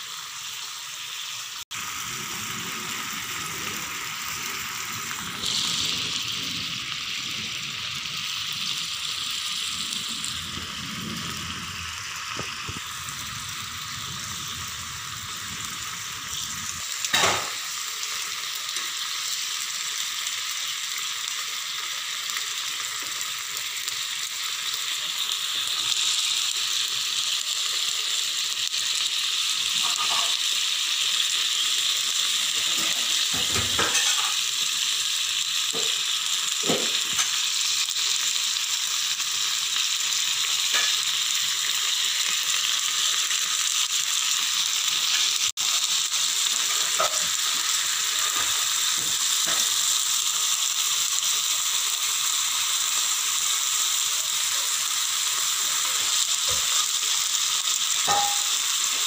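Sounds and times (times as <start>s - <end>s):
meat sizzling in a pan: 0.0s - 59.0s
metal spatula knocking on pan: 58.1s - 58.6s.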